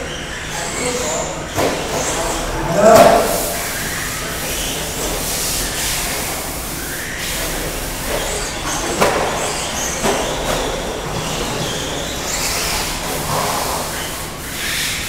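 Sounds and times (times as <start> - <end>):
tyres hissing on track: 0.0 - 15.0.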